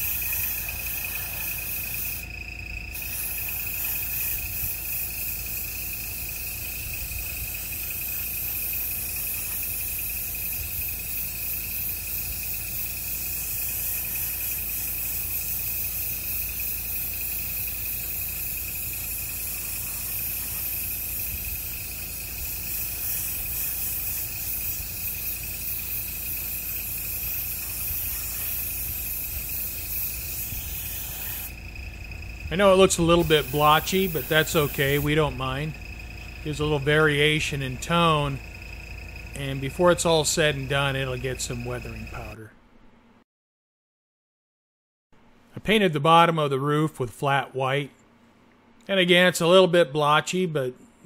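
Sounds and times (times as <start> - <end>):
airbrush air hiss: 0.0 - 42.4
high whine: 13.3 - 42.5.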